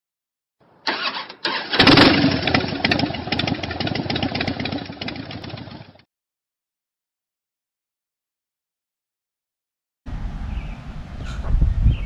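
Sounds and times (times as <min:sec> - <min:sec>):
engine starting and running: 0:00.9 - 0:06.0.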